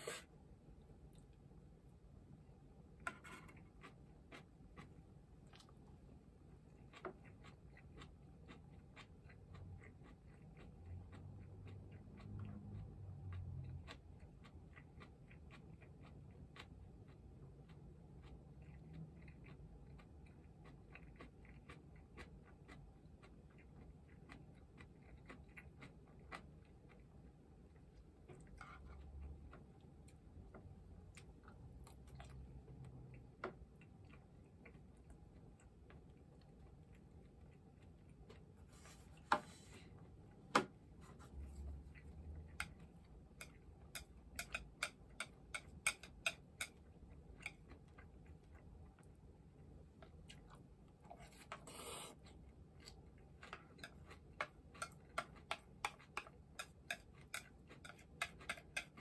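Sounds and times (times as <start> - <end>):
chopsticks clicking against bowls: 42.5 - 46.8, 53.4 - 59.0.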